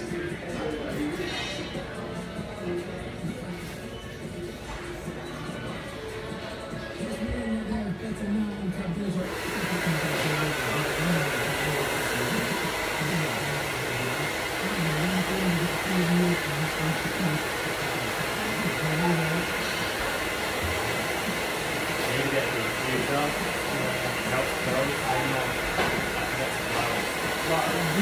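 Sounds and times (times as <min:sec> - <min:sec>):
hair dryer blowing: 0:09.2 - 0:28.0.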